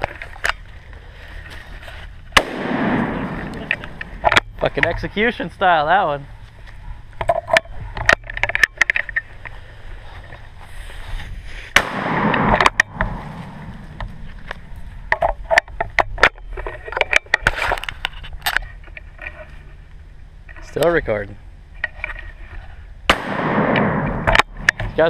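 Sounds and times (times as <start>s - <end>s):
gun handling clicks and knocks: 0.0s - 0.7s, 2.3s - 5.1s, 6.6s - 9.5s, 12.2s - 19.5s, 23.7s - 25.0s
rustling and scraping: 0.0s - 21.0s, 21.7s - 22.9s.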